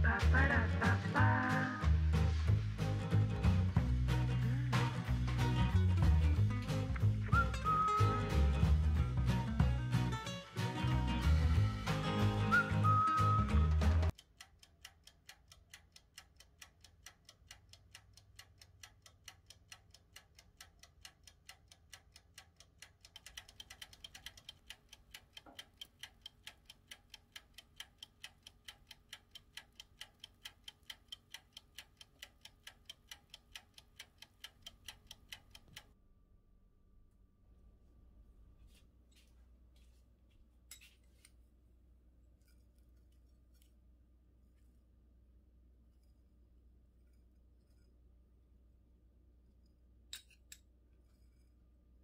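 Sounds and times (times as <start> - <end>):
wind-up timer ticking: 14.1 - 36.0.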